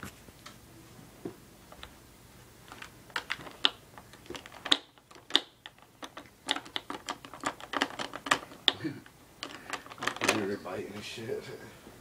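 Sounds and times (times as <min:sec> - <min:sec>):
plastic toys clicking and clattering: 0:02.7 - 0:10.6.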